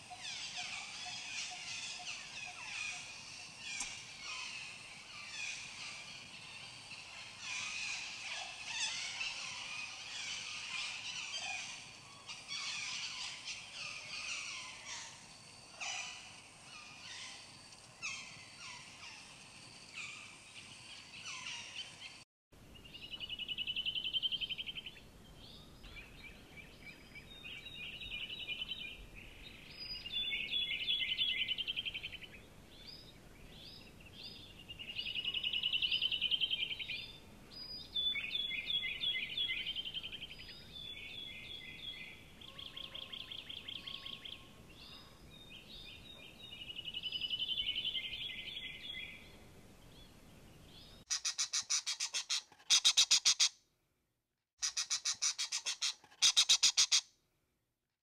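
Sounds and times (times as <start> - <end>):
steady background hiss: 0.0 - 42.5
songbirds singing trilled phrases: 22.8 - 53.5, 54.6 - 57.1.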